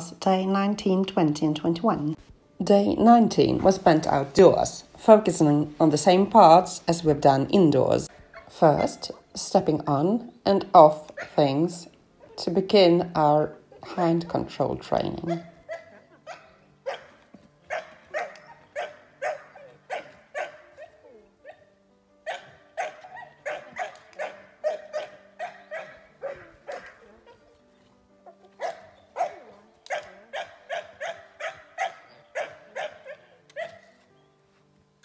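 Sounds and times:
soft background music: 0:00.0 - 0:35.0
puppy barking: 0:11.2 - 0:11.4, 0:15.2 - 0:27.5, 0:28.2 - 0:34.0.

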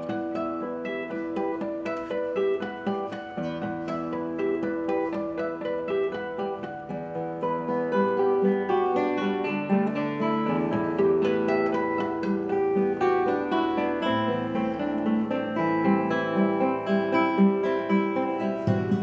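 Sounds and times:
classical guitars playing: 0:00.0 - 0:19.0.

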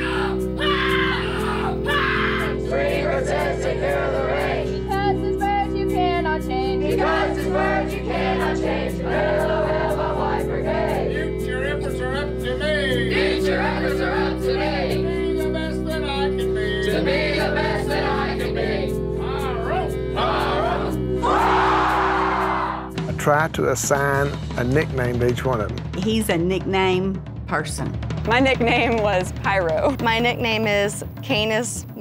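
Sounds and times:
background music: 0:00.0 - 0:32.0
teenagers singing together: 0:01.2 - 0:04.9, 0:06.3 - 0:22.9.

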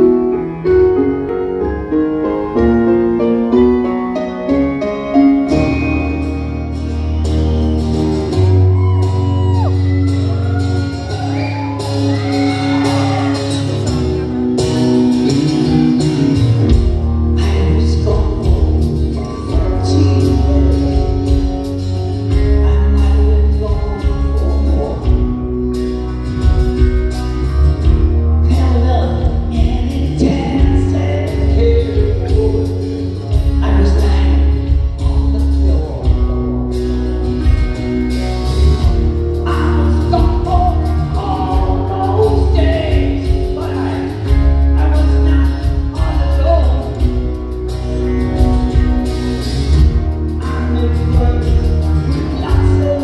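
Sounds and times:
live rock band playing: 0:00.0 - 0:53.0
man singing lead vocal: 0:17.3 - 0:25.5, 0:28.4 - 0:36.5, 0:39.2 - 0:47.5, 0:50.3 - 0:53.0.

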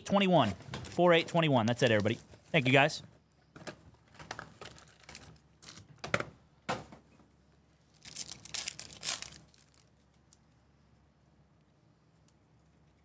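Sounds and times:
card pack wrapper crinkling: 0:04.1 - 0:05.9, 0:07.9 - 0:10.1.

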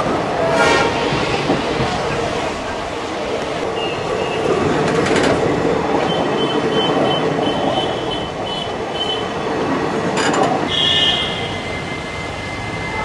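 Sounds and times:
train wheels rumbling on rails: 0:00.0 - 0:13.0
wheels clacking over rail joint: 0:04.5 - 0:09.2, 0:09.9 - 0:10.8.

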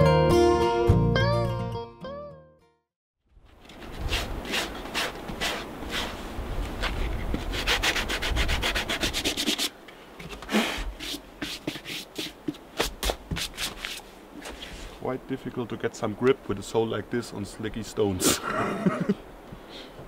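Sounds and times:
abrasive rubbing on rubber: 0:03.8 - 0:15.0.

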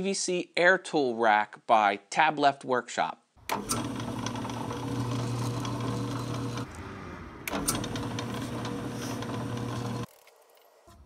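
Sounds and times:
drill press motor running: 0:03.4 - 0:06.8, 0:07.4 - 0:10.1.

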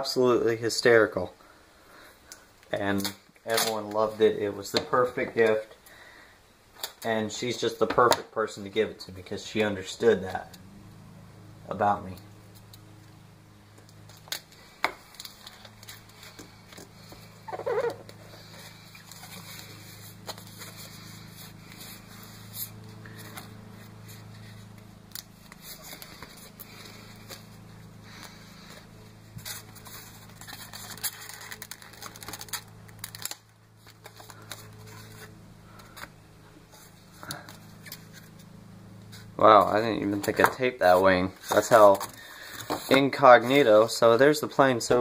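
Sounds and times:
adhesive tape ripping off roll: 0:29.4 - 0:36.1.

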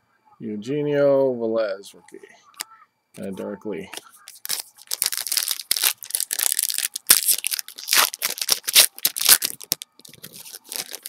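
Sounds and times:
foil wrappers crinkling: 0:04.2 - 0:11.0.

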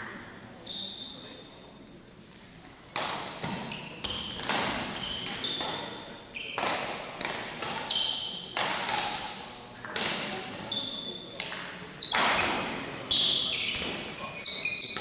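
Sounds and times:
shoes squeaking on court floor: 0:00.6 - 0:01.7, 0:03.4 - 0:06.9, 0:07.6 - 0:08.7, 0:10.4 - 0:15.0
racket hitting shuttlecock: 0:02.9 - 0:10.7.

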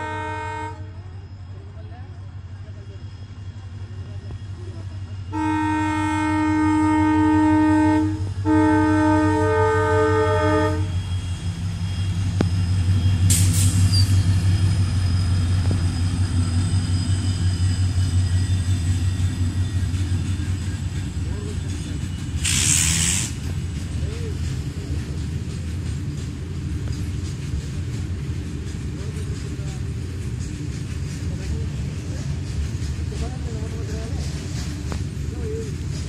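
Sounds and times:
locomotive air horn blasts: 0:00.0 - 0:00.9, 0:05.3 - 0:11.0.

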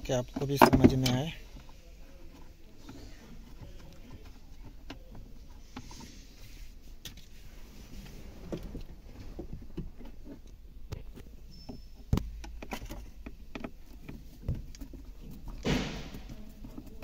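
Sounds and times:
sharp knock: 0:15.6 - 0:16.3.

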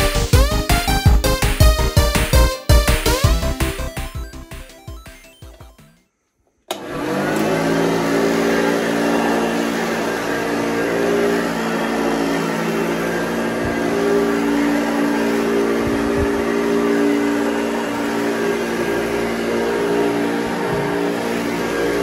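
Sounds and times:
vacuum cleaner running: 0:00.0 - 0:05.8, 0:06.7 - 0:22.0
low bumps: 0:09.9 - 0:22.0.

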